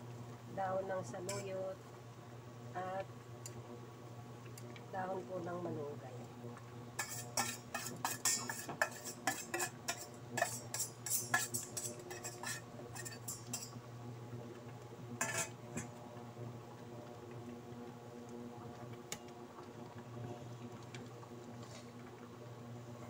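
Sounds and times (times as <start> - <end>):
induction cooktop hum: 0.0 - 23.0
metal utensils clinking on pot: 1.3 - 1.5, 7.0 - 13.8, 15.2 - 15.9.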